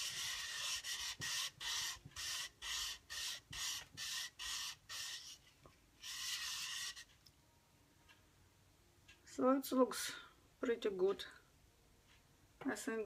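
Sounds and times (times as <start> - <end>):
wet sandpaper rasping: 0.0 - 5.4.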